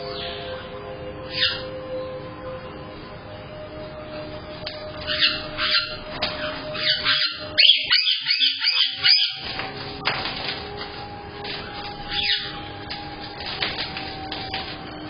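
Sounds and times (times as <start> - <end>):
parrots chirping: 0.0 - 0.7, 1.3 - 1.8, 4.1 - 15.0
parrot whistled calls: 1.3 - 1.7, 5.0 - 9.6, 11.5 - 12.7.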